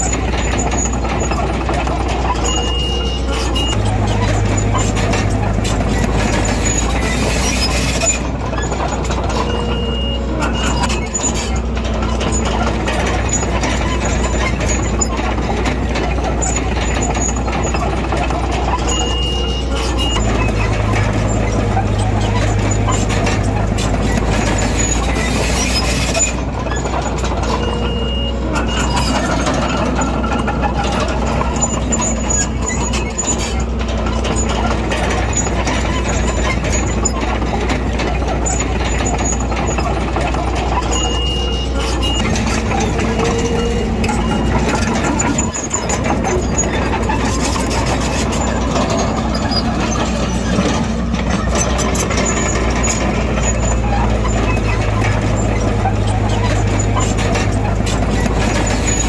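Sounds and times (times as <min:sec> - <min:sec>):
heavy diesel engines droning: 0:00.0 - 0:59.0
mechanical noise: 0:00.0 - 0:59.0.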